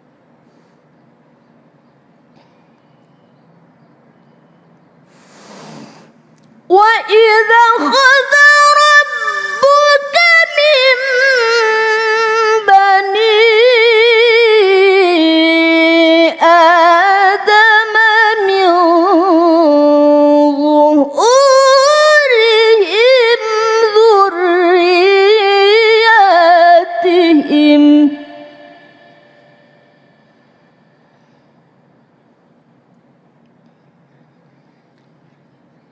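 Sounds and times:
woman chanting melodically: 6.7 - 30.3.

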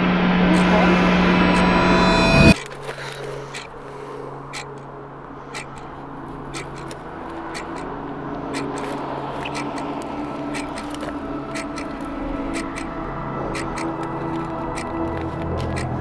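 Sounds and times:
low drone of held tones: 0.0 - 16.0
soft ticks: 6.5 - 12.9, 13.6 - 16.0.

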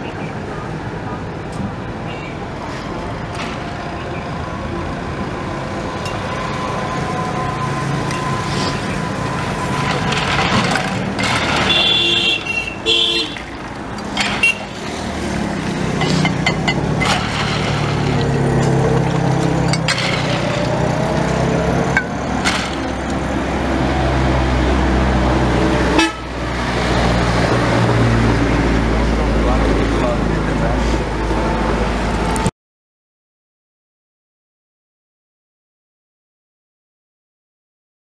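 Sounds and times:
roadside traffic: 0.0 - 32.5
vehicle horn honking: 11.6 - 13.5, 14.3 - 14.8, 25.9 - 26.3.

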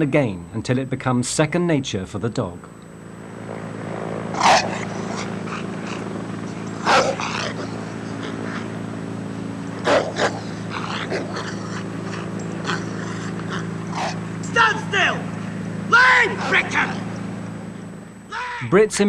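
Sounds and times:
steady mechanical hum: 0.0 - 19.0
dog growling and barking: 4.3 - 8.9, 9.7 - 14.3.

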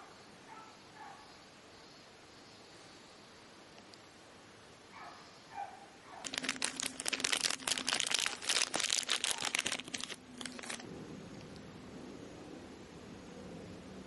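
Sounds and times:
plastic bag crinkling: 6.2 - 10.8.

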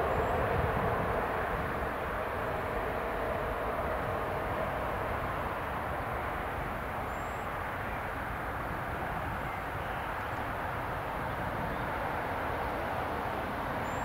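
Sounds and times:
jet engines roaring: 0.0 - 9.7
faint thin engine tone: 0.0 - 14.0.

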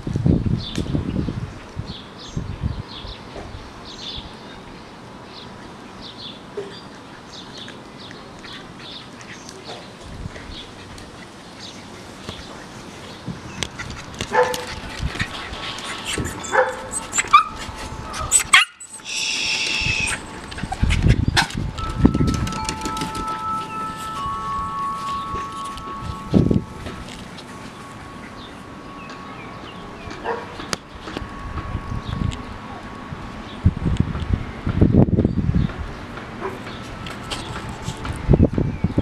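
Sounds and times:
dog chewing a stick: 13.6 - 23.0
small dog yelping: 16.2 - 21.0.

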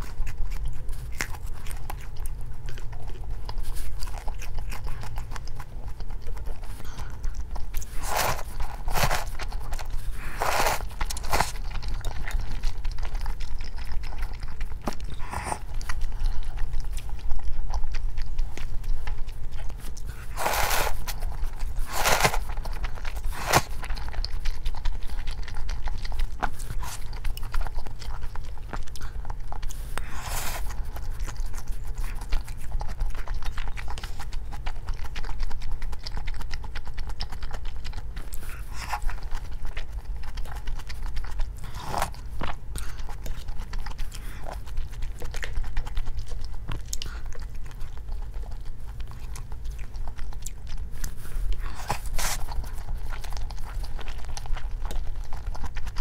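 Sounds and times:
person chewing food: 0.0 - 56.0
steady low hum: 0.0 - 56.0
sharp crunches: 7.8 - 11.6, 20.1 - 22.6, 23.2 - 23.9.

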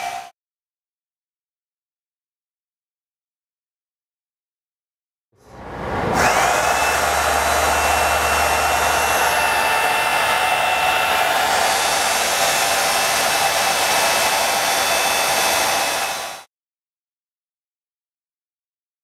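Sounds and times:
hydraulic pump running: 5.4 - 16.5.

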